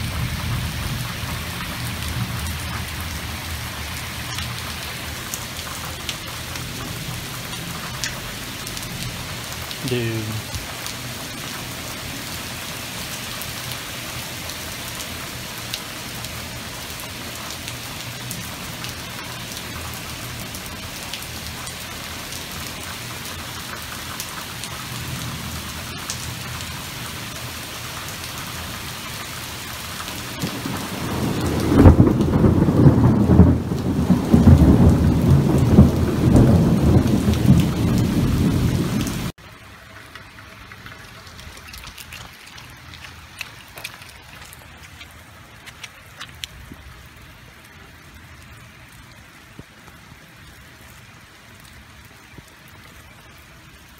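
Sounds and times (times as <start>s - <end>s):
thunder rumbling: 0.0s - 11.5s, 30.3s - 39.3s
heavy rain on pavement: 0.0s - 53.9s.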